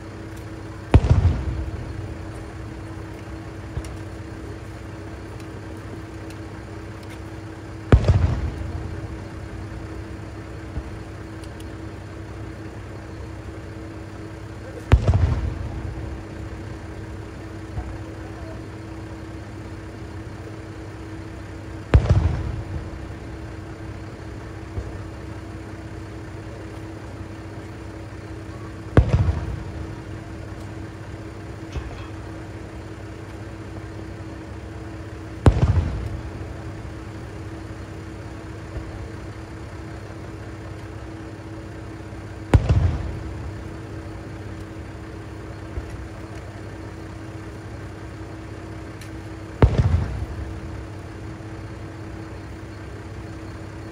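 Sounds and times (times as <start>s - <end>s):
firework shells booming: 0.0s - 53.8s
diesel railcar idling hum: 0.0s - 53.9s
faint firework pops: 3.2s - 4.2s, 17.7s - 18.2s, 21.9s - 22.9s, 28.9s - 30.0s, 35.4s - 36.3s, 42.5s - 43.3s, 49.0s - 50.6s.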